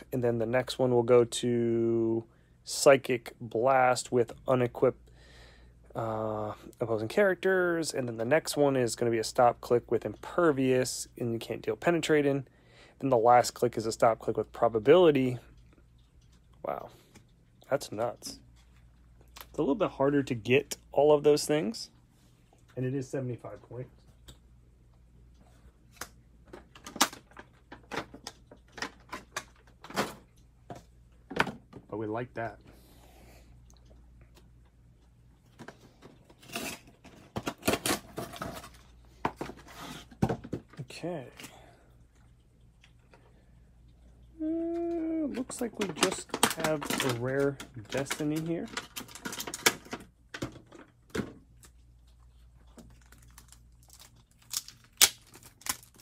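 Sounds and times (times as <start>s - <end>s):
low steady hum: 0.0s - 56.0s
plastic packaging crackling: 45.3s - 50.0s, 52.7s - 56.0s.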